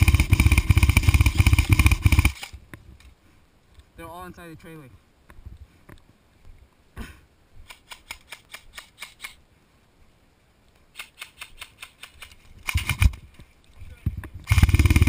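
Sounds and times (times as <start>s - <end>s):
airsoft guns firing sharp snaps: 7.6s - 9.4s, 10.9s - 13.2s.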